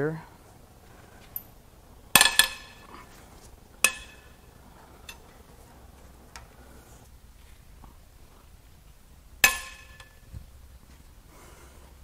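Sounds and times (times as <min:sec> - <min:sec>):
metal clanks with ringing tail: 0:02.1 - 0:02.9, 0:03.8 - 0:04.5, 0:09.4 - 0:10.2.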